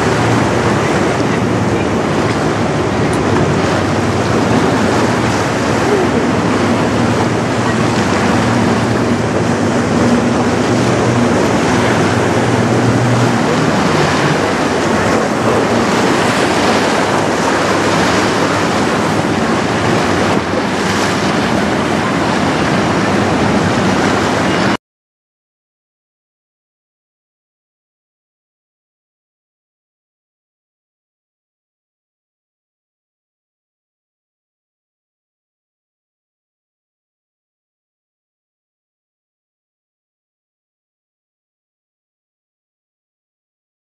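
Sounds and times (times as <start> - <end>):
churning water: 0.0 - 24.8
ship engine drone: 0.0 - 24.8
wind buffeting microphone: 0.0 - 24.8.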